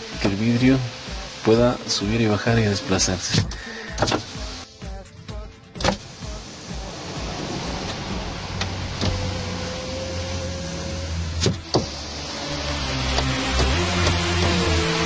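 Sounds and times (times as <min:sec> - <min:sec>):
power window motor humming: 0:05.8 - 0:15.0.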